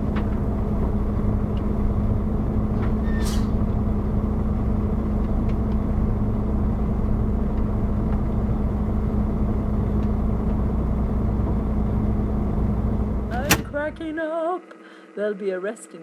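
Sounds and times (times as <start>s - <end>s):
diesel engine rumble: 0.0s - 15.2s.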